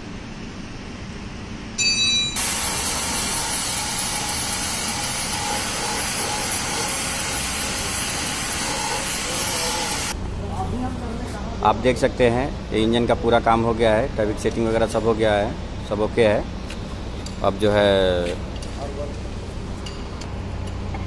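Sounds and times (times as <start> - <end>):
hiss of rushing air: 2.4 - 10.2.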